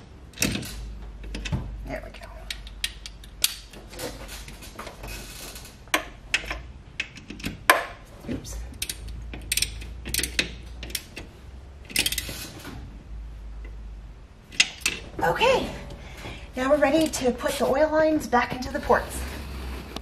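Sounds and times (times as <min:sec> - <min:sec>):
ratchet wrench clicking: 0:08.7 - 0:11.2, 0:11.9 - 0:12.4.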